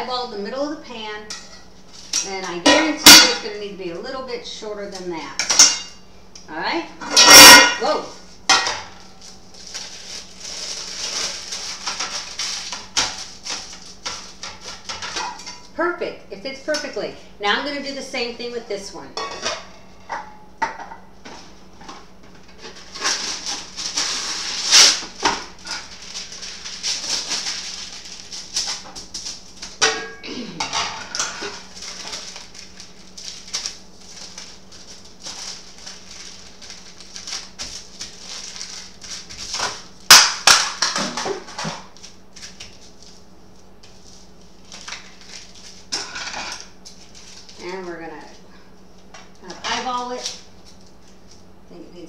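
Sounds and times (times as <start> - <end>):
wax paper crinkling: 9.0 - 15.0, 22.4 - 29.8, 31.5 - 40.6, 41.8 - 45.9, 46.6 - 51.5.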